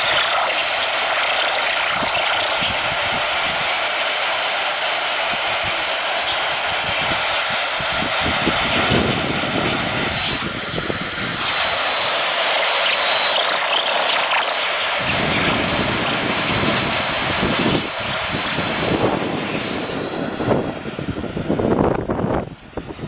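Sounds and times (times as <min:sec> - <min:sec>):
radio crackles: 0:00.0 - 0:03.1
radio static hiss: 0:00.0 - 0:07.9, 0:09.5 - 0:20.8.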